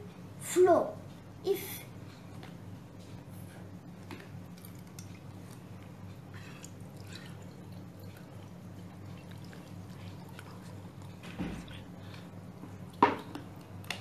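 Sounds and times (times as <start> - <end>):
steady low hum: 0.0 - 14.0
faint drips: 4.0 - 14.0
water trickling into glass jar: 6.7 - 11.2.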